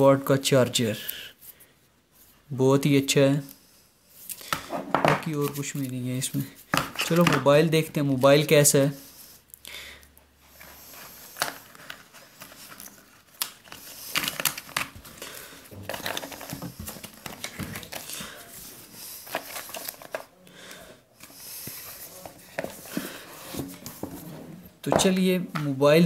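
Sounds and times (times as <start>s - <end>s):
packaging crinkling and rustling: 10.9s - 20.4s.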